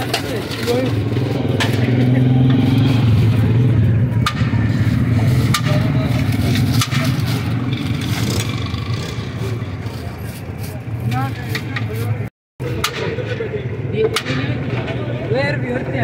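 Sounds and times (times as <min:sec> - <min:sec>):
vehicle engine running: 0:00.0 - 0:12.2
busy street noise: 0:00.0 - 0:16.0.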